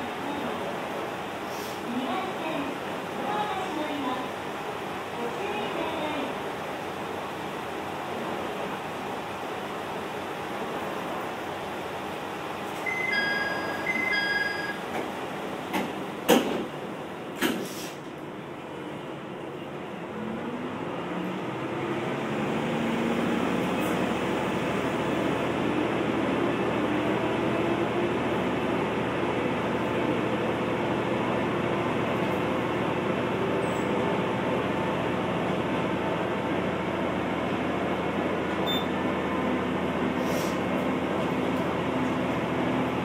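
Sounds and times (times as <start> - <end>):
railcar diesel engine: 0.0 - 43.0
train wheels on rails: 12.6 - 18.2.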